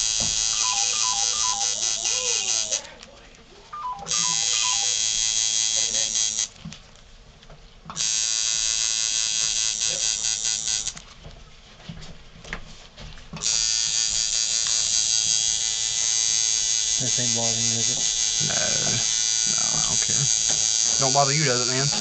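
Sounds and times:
tattoo machine buzzing: 0:00.0 - 0:02.9, 0:04.0 - 0:06.5, 0:07.9 - 0:11.0, 0:13.4 - 0:22.0.

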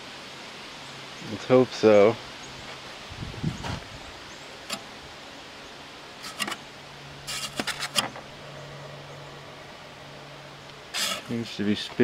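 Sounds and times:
low steady hum: 0:00.0 - 0:12.0
fan wheel clicking and rattling: 0:06.2 - 0:06.6.

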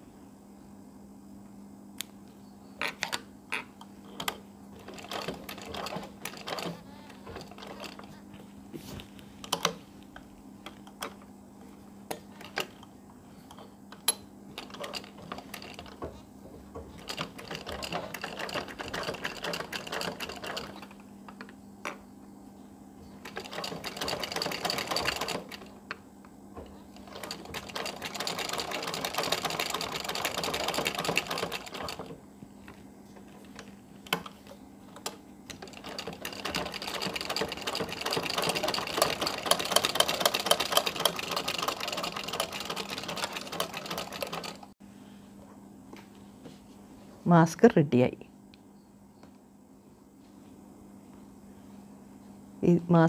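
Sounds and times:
steady low hum: 0:00.0 - 0:53.0
sewing machine stitching: 0:04.2 - 0:08.2, 0:14.5 - 0:16.1, 0:16.9 - 0:21.0, 0:23.2 - 0:25.7, 0:26.6 - 0:32.1, 0:35.5 - 0:44.7.

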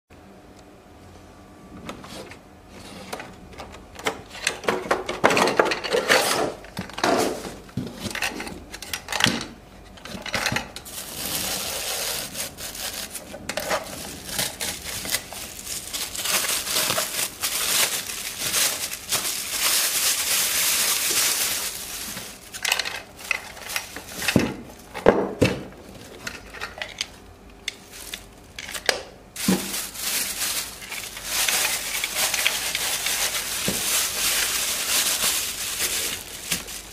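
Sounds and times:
thin plastic crinkling: 0:09.9 - 0:36.9.

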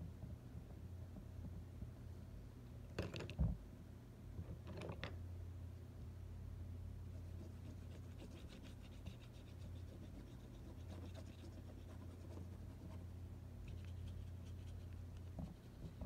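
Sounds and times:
steady low hum: 0:00.0 - 0:16.0
pencil scratching on paper: 0:07.2 - 0:13.0.

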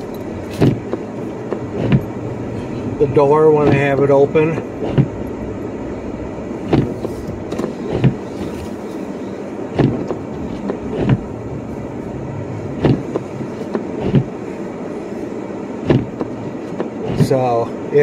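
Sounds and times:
car running noise from inside: 0:00.0 - 0:18.0
short thumps: 0:00.4 - 0:02.2, 0:03.6 - 0:05.3, 0:06.6 - 0:08.8, 0:09.7 - 0:11.6, 0:12.6 - 0:14.4, 0:15.8 - 0:17.3.

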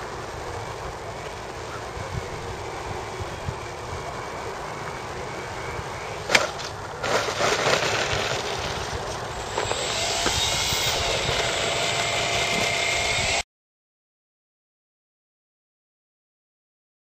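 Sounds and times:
electric motor whine: 0:00.0 - 0:13.4
rough gravel noise: 0:06.2 - 0:12.9.

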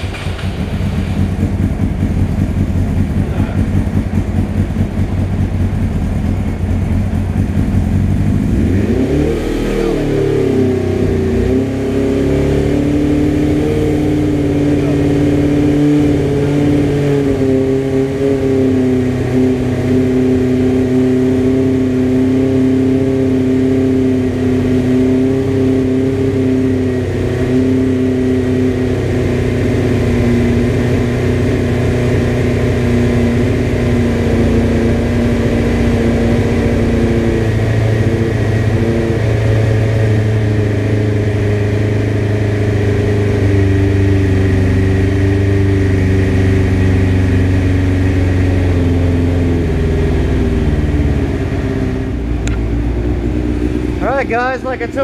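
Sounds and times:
motorcycle engine idling: 0:00.0 - 0:08.8, 0:27.8 - 0:55.0.

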